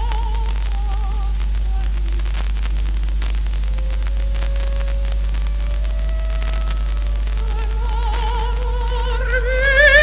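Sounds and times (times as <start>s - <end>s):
faint crackles: 0.0s - 10.0s
low mains hum: 0.0s - 10.0s
recording hiss: 0.0s - 10.0s
orchestra soft sustained notes: 3.7s - 10.0s.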